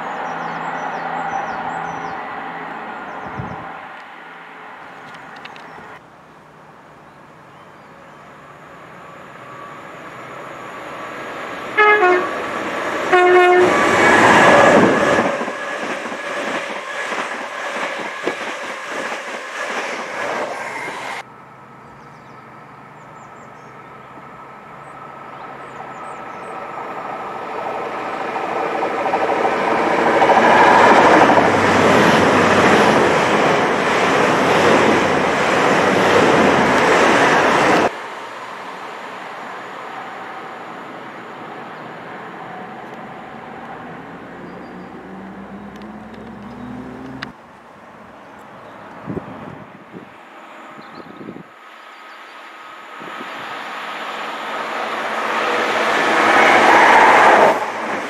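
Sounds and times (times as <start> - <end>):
train passing with wheel noise: 0.0 - 58.0
train horn notes: 11.7 - 15.5.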